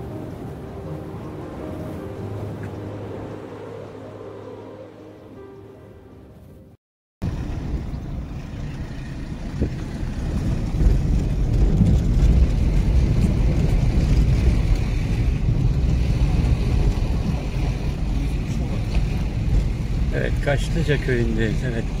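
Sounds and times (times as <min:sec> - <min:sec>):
wind buffeting microphone: 0:07.2 - 0:22.0.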